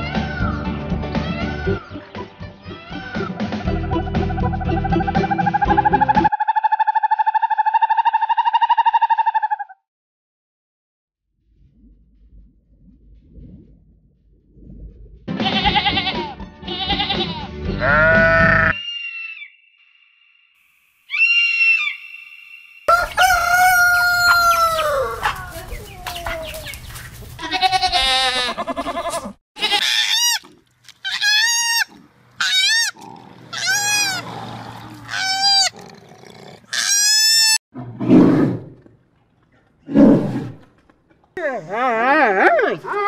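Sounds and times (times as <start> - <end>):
long falling animal call: 4.3 - 9.8, 21.1 - 26.6
low animal grunts: 35.7 - 36.8.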